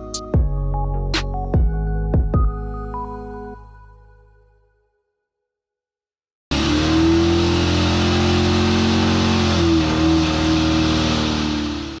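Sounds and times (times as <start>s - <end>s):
car engine at high revs: 6.5s - 12.0s.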